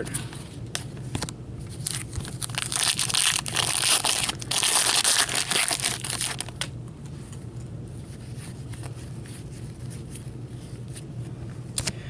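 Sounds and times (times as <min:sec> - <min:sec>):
foil wrapper crinkling and tearing: 0:01.7 - 0:06.7.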